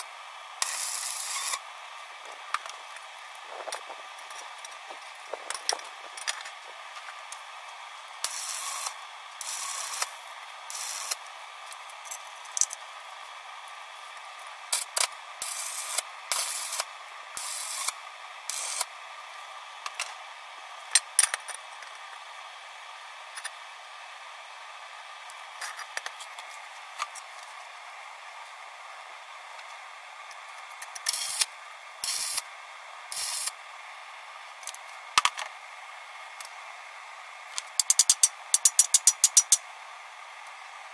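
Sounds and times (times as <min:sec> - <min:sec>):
welding arc hiss: 0:00.0 - 0:01.6, 0:08.2 - 0:11.3, 0:14.7 - 0:18.9, 0:30.9 - 0:32.5, 0:33.1 - 0:33.6, 0:37.6 - 0:39.6.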